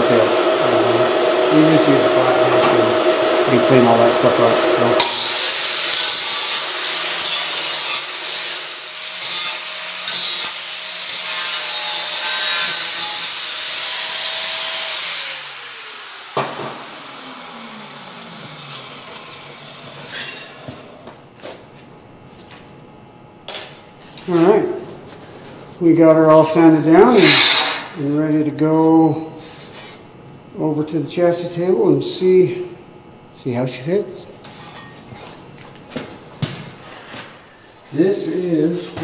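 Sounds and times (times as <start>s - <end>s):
angle grinder grinding steel: 3.4s - 20.6s, 27.0s - 28.0s.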